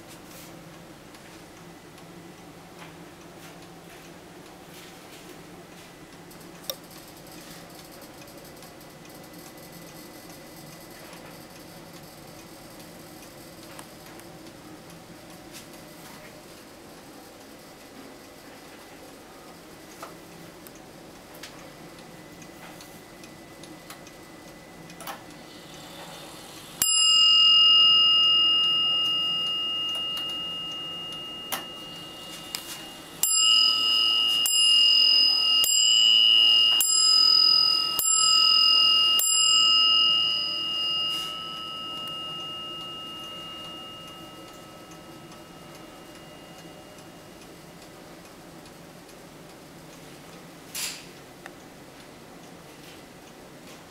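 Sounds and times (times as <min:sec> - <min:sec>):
faint clock ticking: 0:00.3 - 0:53.9
clock bell striking: 0:26.8 - 0:47.6.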